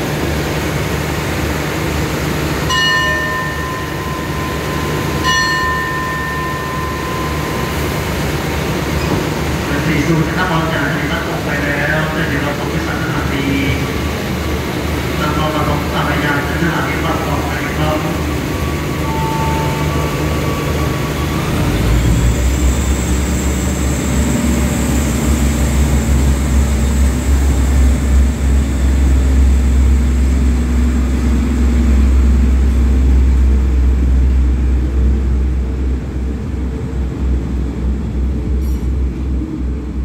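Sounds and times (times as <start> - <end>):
train engine and wheel rumble: 0.0 - 40.0
thin high whine: 2.7 - 9.9, 16.8 - 27.8.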